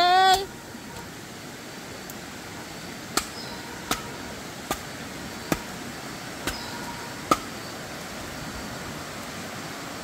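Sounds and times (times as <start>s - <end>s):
machete chopping into log: 3.1s - 4.1s, 4.7s - 4.9s, 6.4s - 7.5s.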